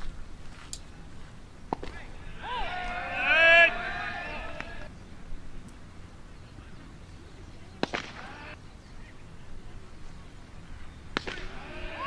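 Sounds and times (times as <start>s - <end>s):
umpire calling: 1.7s - 4.9s, 6.5s - 9.9s, 11.2s - 12.0s.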